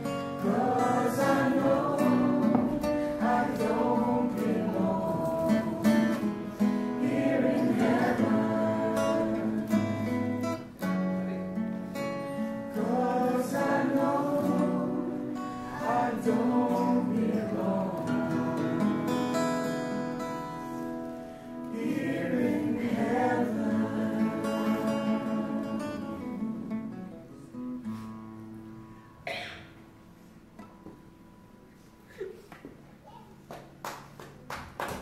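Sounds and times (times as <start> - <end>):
strummed acoustic guitar: 0.0 - 32.0
group of voices singing: 0.4 - 10.7, 12.7 - 19.4, 21.7 - 26.8.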